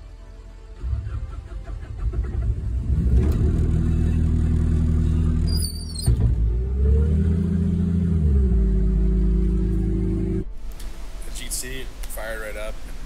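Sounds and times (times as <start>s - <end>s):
diesel engine running: 0.8s - 10.5s.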